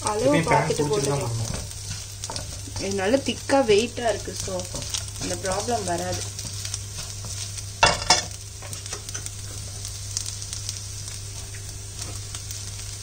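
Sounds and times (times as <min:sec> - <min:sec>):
rice sizzling in oil: 0:00.0 - 0:13.0
spatula scraping a pan: 0:00.8 - 0:09.8.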